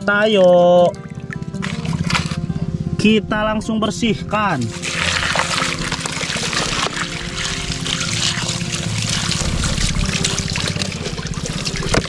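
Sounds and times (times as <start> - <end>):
hose water splashing into plastic: 0.4 - 2.4, 4.5 - 12.0.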